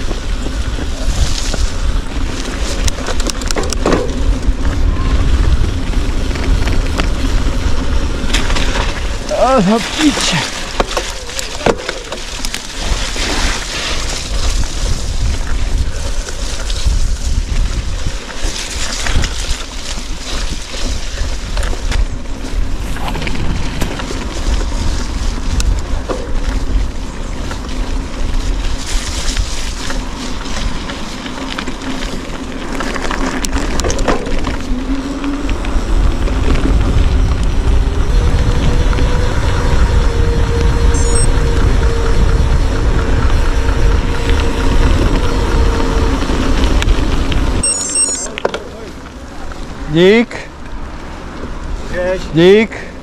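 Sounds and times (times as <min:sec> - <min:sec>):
bicycle knocks and rattles: 0:00.0 - 0:09.3, 0:10.5 - 0:35.4
wind on microphone: 0:00.0 - 0:30.9, 0:33.5 - 0:47.7.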